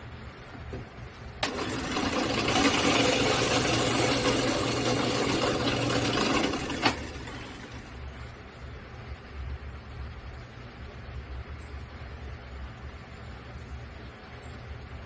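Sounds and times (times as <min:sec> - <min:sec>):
drill press drilling wood: 0:01.4 - 0:07.9.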